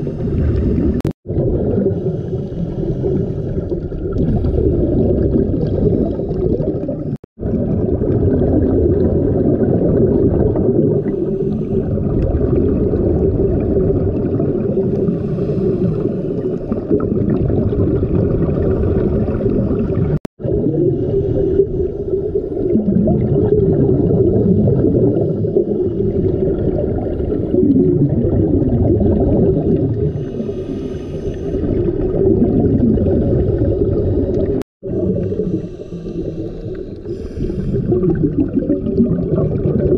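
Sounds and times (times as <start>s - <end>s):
water bubbling: 0.0s - 39.9s
diver breathing underwater: 1.7s - 7.2s, 10.7s - 12.2s, 14.7s - 17.4s, 18.4s - 23.0s, 29.8s - 32.1s, 32.9s - 39.9s.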